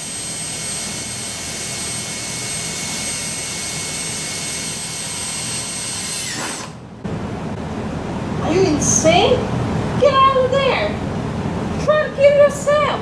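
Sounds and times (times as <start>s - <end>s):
cordless drill boring into pipe: 0.0s - 6.8s.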